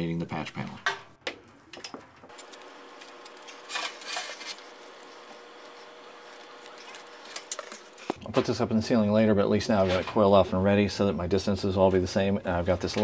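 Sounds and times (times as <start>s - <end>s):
cables rustling and rubbing: 2.3s - 8.2s.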